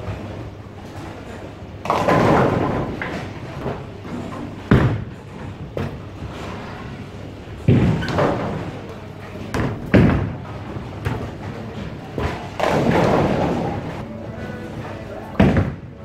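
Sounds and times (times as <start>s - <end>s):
bowling pins crashing: 1.8s - 6.9s, 7.6s - 14.0s, 15.2s - 16.0s.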